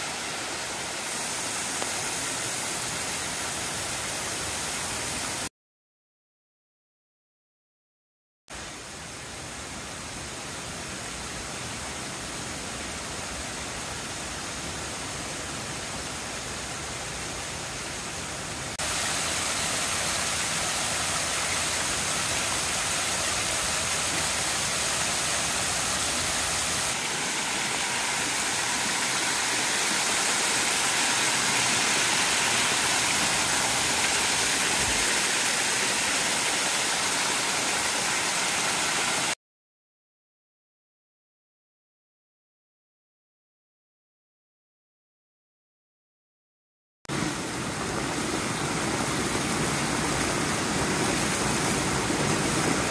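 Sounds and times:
waterfall splashing into a pool: 0:00.0 - 0:05.5, 0:18.7 - 0:39.4, 0:47.1 - 0:52.9.

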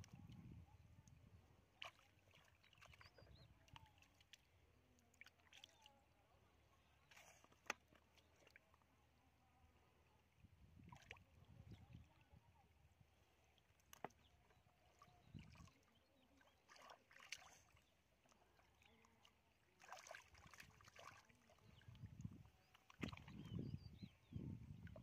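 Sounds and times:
hands splashing in muddy water: 0:16.6 - 0:17.8, 0:19.8 - 0:22.0, 0:22.8 - 0:23.6.

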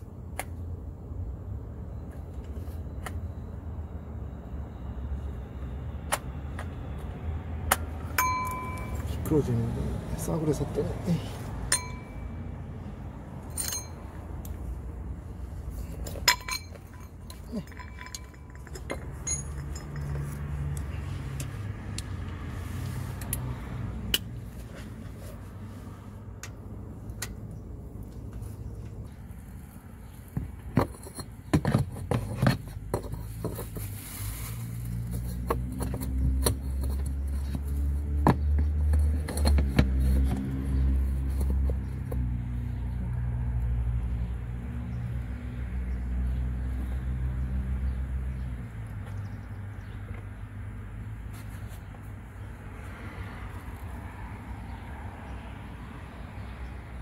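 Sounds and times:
metal hand tools clinking: 0:11.7 - 0:12.2, 0:13.5 - 0:14.1, 0:15.9 - 0:21.0.

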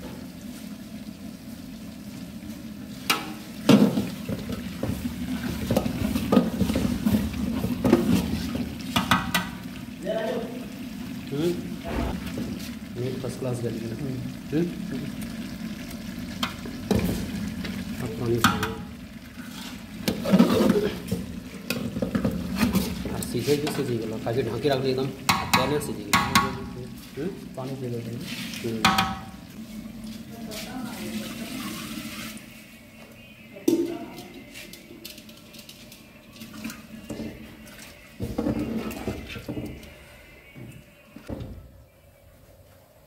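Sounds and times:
meat sizzling in hot oil: 0:00.0 - 0:32.0
water pouring into pot: 0:00.0 - 0:32.6
utensil stirring in metal pot: 0:02.9 - 0:10.0, 0:15.4 - 0:32.6
metal spatula scraping pot: 0:19.3 - 0:23.9.

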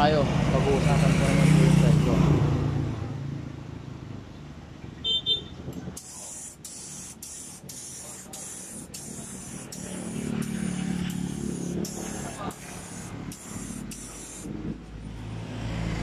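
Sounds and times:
paint spray gun hissing: 0:05.8 - 0:15.1.

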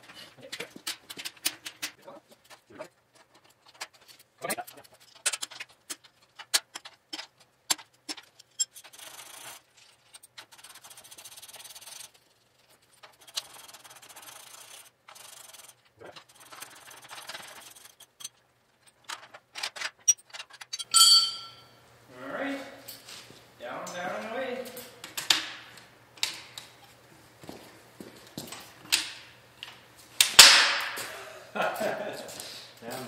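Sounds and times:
scratchy metal scraping: 0:08.2 - 0:18.4.

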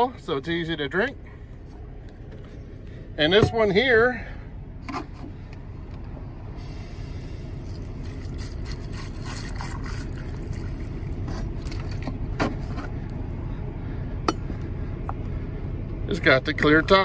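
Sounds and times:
water pouring over ice: 0:07.6 - 0:12.1.

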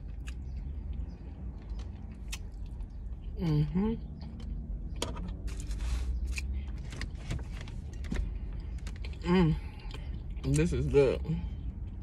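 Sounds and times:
wet chewing and mouth clicks: 0:00.0 - 0:03.4
low car rumble: 0:00.0 - 0:12.0.

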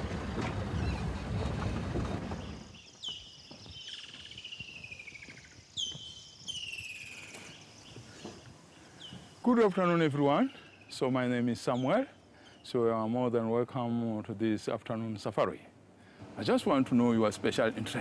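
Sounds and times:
vehicle engine rumbling: 0:00.0 - 0:03.0
bird singing: 0:00.7 - 0:13.2.

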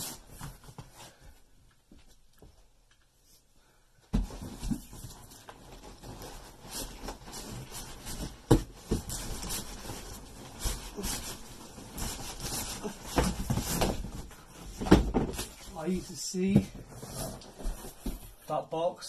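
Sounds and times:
cardboard boxes scraping: 0:04.2 - 0:18.4.

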